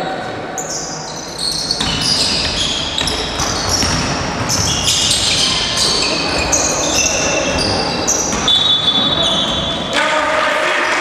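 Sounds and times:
basketball shoes squeaking on gym floor: 0.6s - 9.9s.

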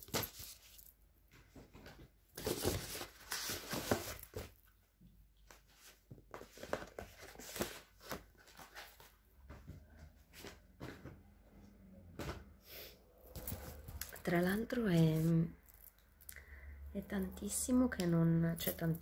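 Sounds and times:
paper rustling and crinkling: 1.4s - 4.6s, 5.4s - 9.7s, 13.3s - 14.2s.

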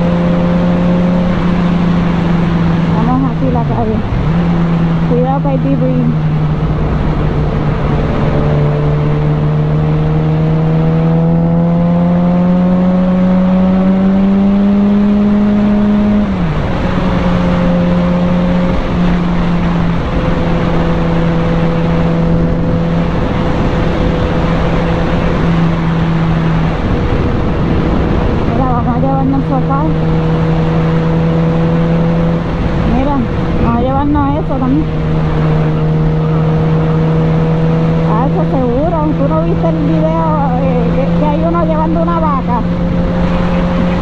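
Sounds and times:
motorcycle engine accelerating: 0.0s - 44.0s
wind and road noise: 0.0s - 44.0s.

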